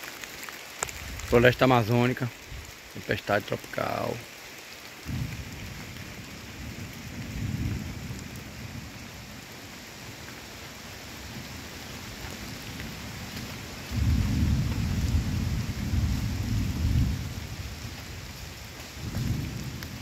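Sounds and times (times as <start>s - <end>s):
rain falling on foliage: 0.0s - 20.0s
thunder rumbling: 5.0s - 9.4s, 13.8s - 20.0s.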